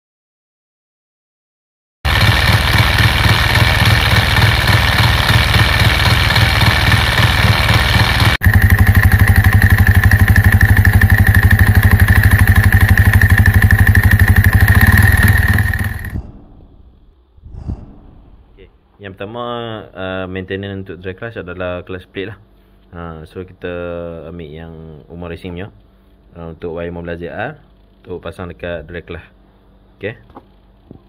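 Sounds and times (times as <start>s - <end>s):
motorcycle engine idling: 2.1s - 17.1s
high whine: 2.1s - 18.8s.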